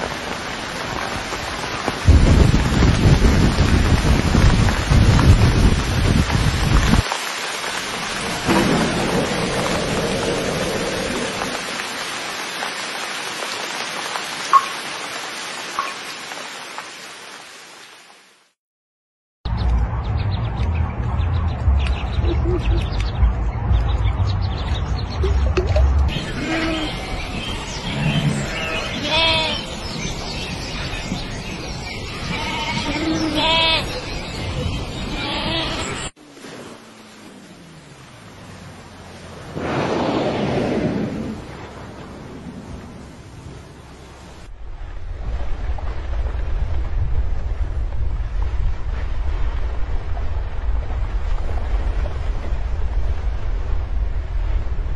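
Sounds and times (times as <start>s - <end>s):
thunder rumbling: 0.0s - 7.1s, 7.8s - 11.8s, 39.4s - 54.9s
steady rain: 0.0s - 18.6s, 25.1s - 54.9s
sheep bleating: 32.2s - 33.9s.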